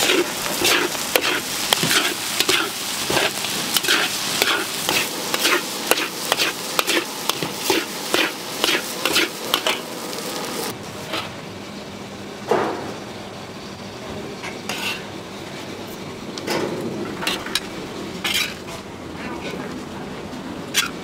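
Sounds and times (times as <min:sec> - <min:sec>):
metal spatula scraping a wok: 0:00.0 - 0:09.9, 0:11.0 - 0:11.4, 0:14.6 - 0:15.1, 0:17.2 - 0:19.6, 0:20.7 - 0:21.0
food sizzling: 0:00.0 - 0:11.2.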